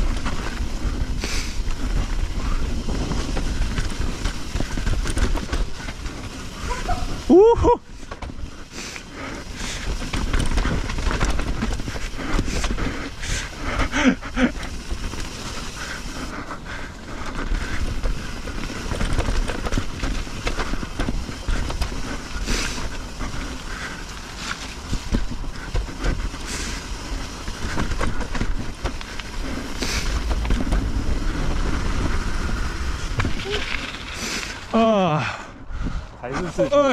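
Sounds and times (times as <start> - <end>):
bike rattling over bumps: 0.0 - 36.9
tyres rumbling on dirt: 0.0 - 36.9
wind on microphone: 27.6 - 34.7.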